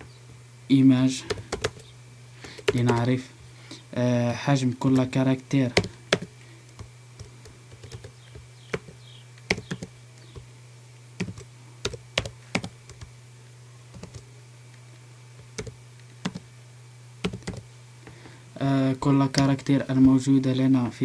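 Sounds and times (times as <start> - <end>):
steady low hum: 0.0 - 21.0
computer keyboard typing: 1.3 - 3.1, 5.7 - 10.5, 11.2 - 13.1, 13.9 - 14.3, 15.4 - 16.5, 17.2 - 17.7.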